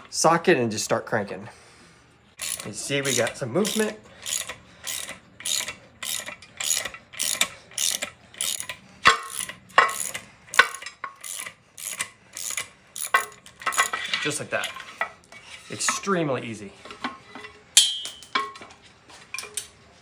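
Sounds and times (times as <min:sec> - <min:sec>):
socket ratchet clicking: 0:02.4 - 0:13.9.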